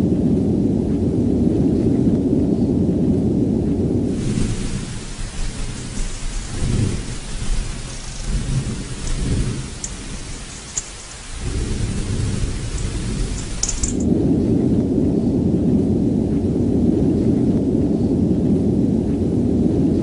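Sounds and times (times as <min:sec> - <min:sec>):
deep volcanic rumbling: 0:00.0 - 0:20.0
steady hiss: 0:03.9 - 0:14.4.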